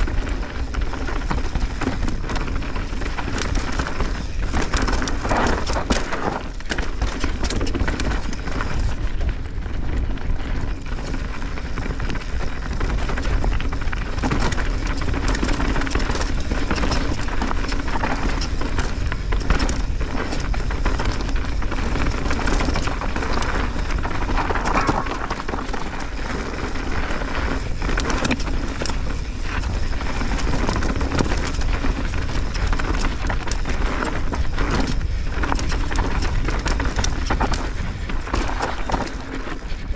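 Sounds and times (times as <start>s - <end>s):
bike knocking and rattling: 0.0s - 39.9s
bike tyres rolling over dirt: 0.0s - 39.9s
wind buffeting microphone: 0.0s - 39.9s.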